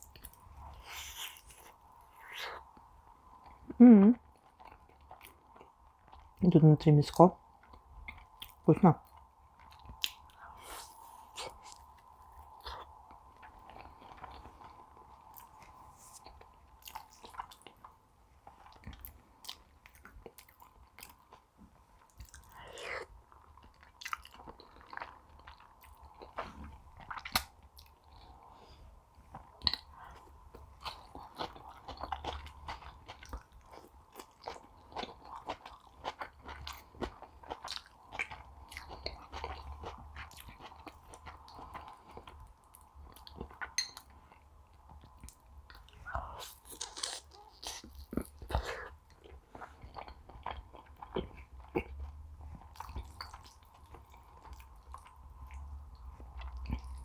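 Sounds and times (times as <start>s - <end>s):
close chewing: 29.3s - 57.0s.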